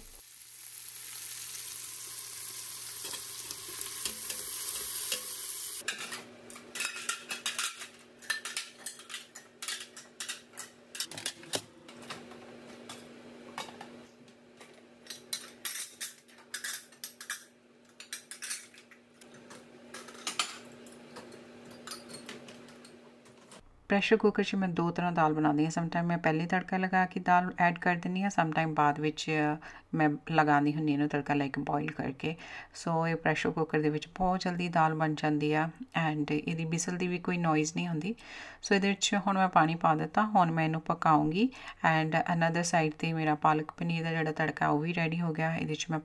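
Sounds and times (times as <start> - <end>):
onions sizzling in oil: 0.0 - 5.8
spoon stirring and scraping pan: 3.0 - 6.1.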